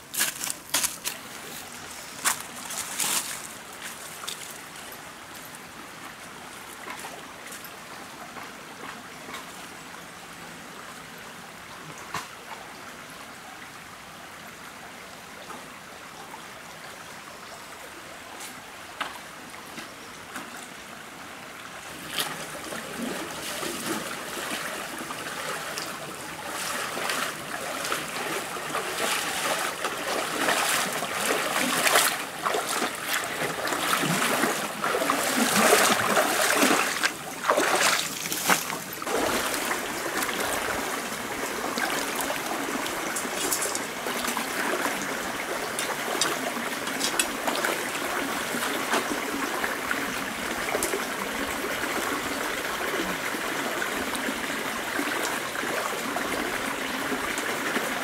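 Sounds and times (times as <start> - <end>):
footsteps crunching on dry leaves: 0.0 - 4.6
stream trickling: 0.0 - 58.0.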